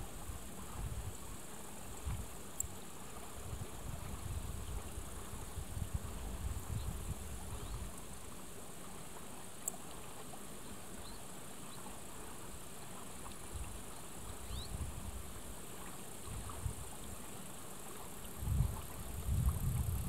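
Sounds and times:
wind buffeting microphone: 3.4s - 7.9s, 18.4s - 20.0s.

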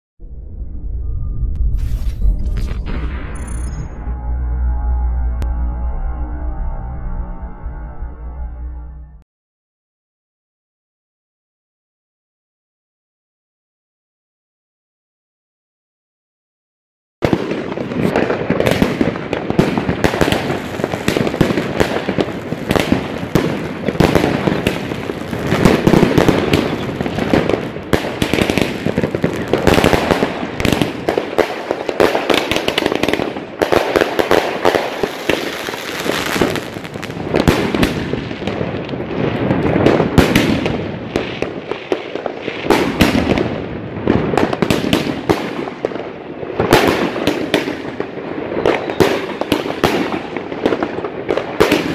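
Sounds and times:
fireworks barrage: 17.2s - 51.9s.

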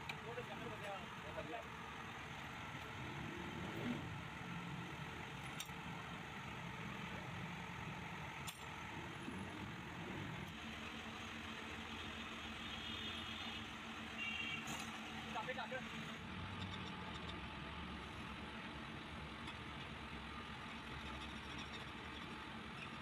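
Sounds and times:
low mechanical rumble: 0.0s - 12.9s
metallic clicks of engine parts: 5.3s - 5.9s, 8.3s - 8.9s, 16.5s - 17.4s, 19.4s - 19.9s, 20.8s - 23.0s.

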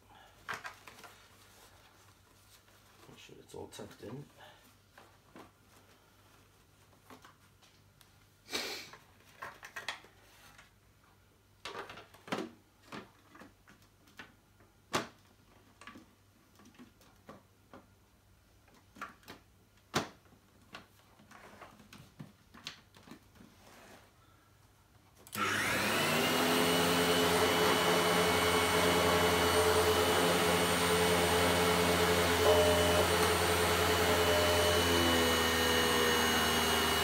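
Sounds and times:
scrapes and rustles: 0.6s - 3.3s, 20.9s - 24.2s.

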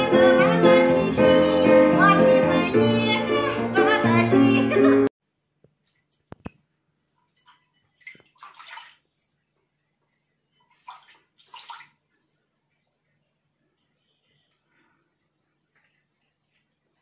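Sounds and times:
water splashing in basin: 7.1s - 9.3s, 10.6s - 12.1s.

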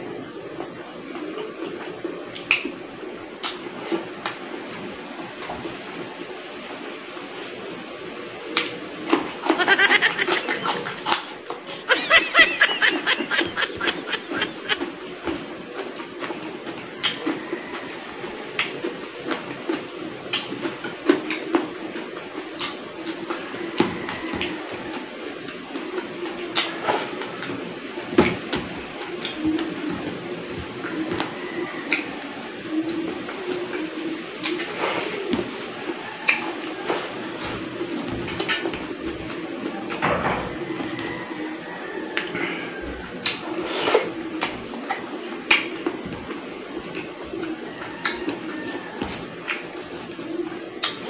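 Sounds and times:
man chewing and lip smacking: 3.3s - 4.8s, 8.5s - 11.9s, 13.4s - 17.4s, 18.6s - 23.4s, 43.2s - 48.4s, 49.0s - 49.9s, 50.8s - 51.0s
high-pitched chattering: 9.5s - 14.8s.

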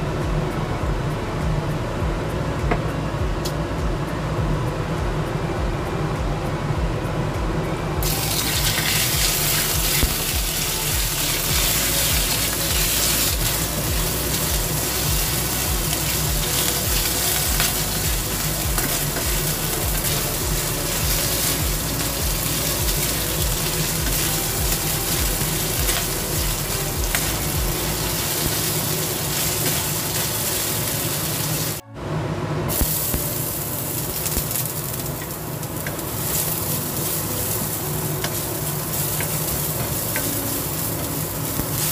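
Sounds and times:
garlic sizzling in a pan: 8.0s - 31.8s, 32.7s - 41.9s
meat sizzling in hot oil: 8.0s - 31.8s, 32.7s - 41.9s.

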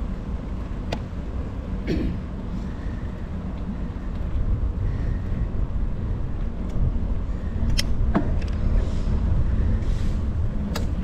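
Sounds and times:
wind rumble on microphone: 2.3s - 11.0s.

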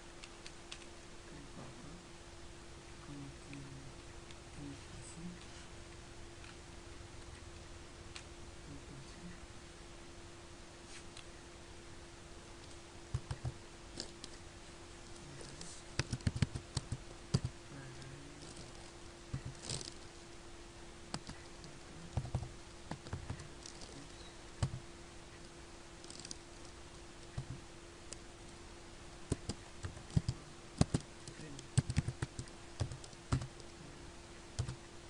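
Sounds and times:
low hum: 0.0s - 35.0s
keyboard key clicks: 29.3s - 33.7s.

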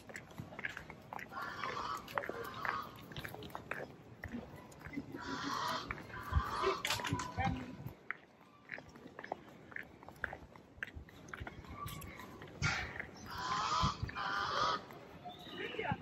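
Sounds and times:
large bird honking calls: 13.2s - 14.9s.

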